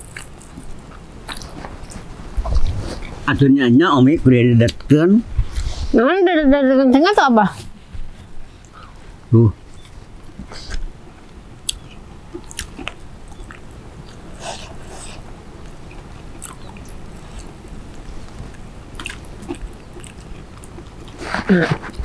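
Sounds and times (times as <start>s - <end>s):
person chewing food: 0.0s - 3.2s, 9.8s - 22.0s.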